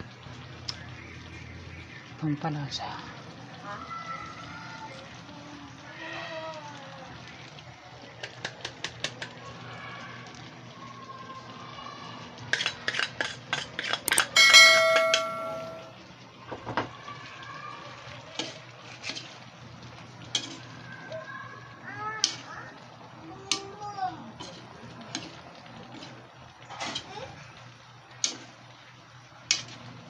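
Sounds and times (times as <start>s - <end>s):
metal spoon tapping a pot: 13.8s - 15.9s
loud ringing clang: 14.1s - 15.9s.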